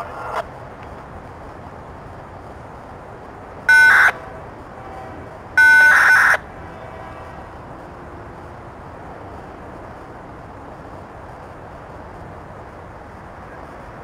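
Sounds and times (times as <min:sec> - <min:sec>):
train horn blasts: 0:04.2 - 0:05.3, 0:06.7 - 0:07.5
freight train rolling past: 0:04.2 - 0:05.6.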